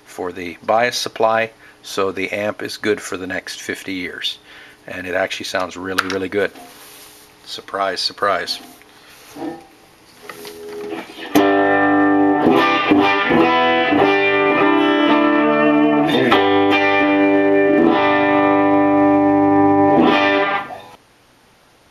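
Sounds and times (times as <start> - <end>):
electric guitar chords ringing: 10.6 - 21.0.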